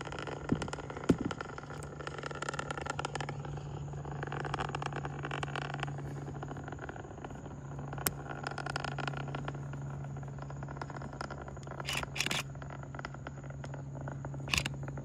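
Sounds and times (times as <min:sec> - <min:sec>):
distant rocket engine rumble: 0:00.0 - 0:15.0.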